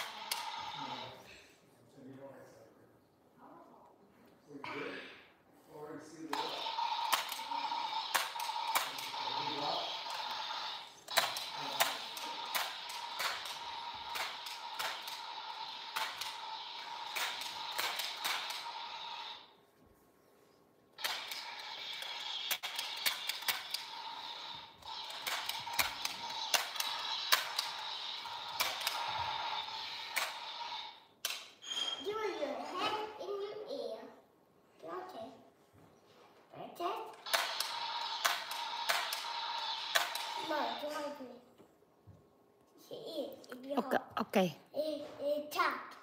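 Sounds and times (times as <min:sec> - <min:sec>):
toy drill whirring: 0:00.0 - 0:01.2, 0:06.3 - 0:19.5, 0:21.0 - 0:31.1, 0:37.1 - 0:41.2
rapid irregular clicking: 0:21.0 - 0:30.8, 0:37.2 - 0:40.5.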